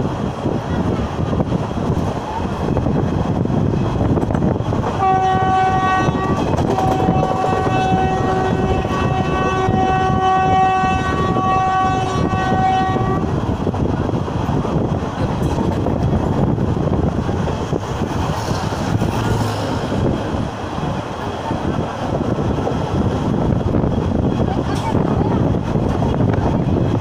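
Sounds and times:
train wheel and wind noise: 0:00.0 - 0:27.0
train horn blasts: 0:05.0 - 0:13.3.

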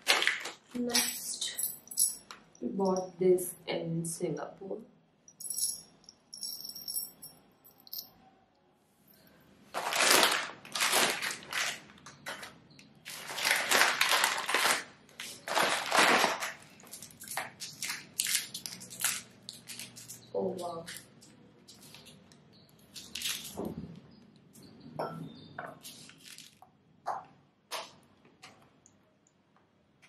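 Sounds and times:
sweet packets crinkling: 0:00.0 - 0:01.6, 0:09.7 - 0:23.6, 0:25.9 - 0:26.7.

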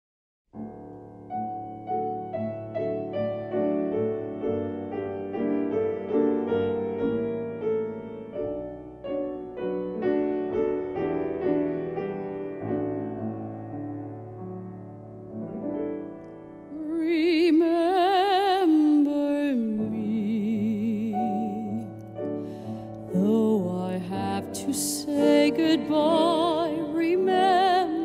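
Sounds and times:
slow solo piano: 0:00.6 - 0:28.0.

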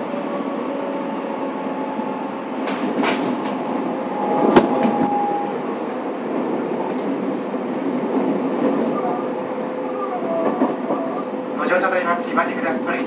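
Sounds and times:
train wheels rumbling on rail: 0:00.0 - 0:13.0
thin squeal: 0:04.0 - 0:05.6.

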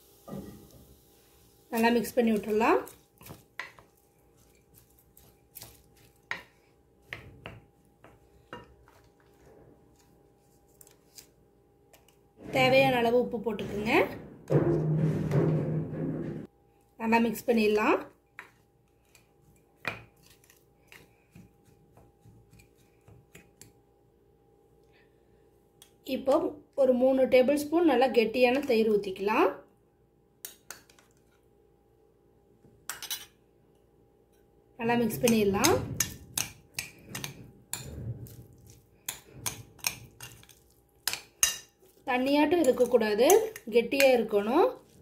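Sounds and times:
spatula scraping a bowl: 0:35.1 - 0:45.0.

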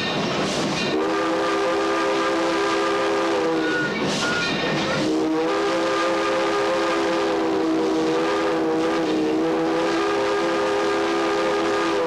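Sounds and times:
locomotive running noise: 0:00.0 - 0:12.0
steam locomotive chime whistle: 0:00.0 - 0:12.0.

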